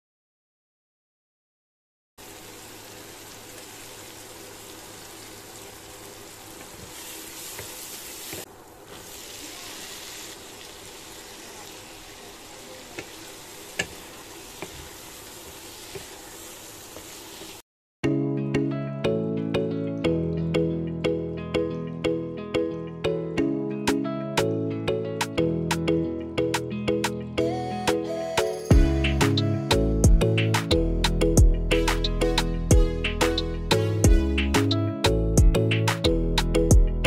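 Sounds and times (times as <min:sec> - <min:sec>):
food frying in oil: 0:02.2 - 0:17.6
wooden spatula knocking on pan: 0:13.8 - 0:14.0.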